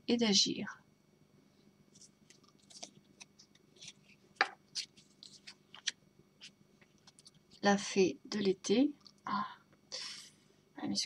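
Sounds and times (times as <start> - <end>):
cards rustling and tapping: 2.0 - 7.6.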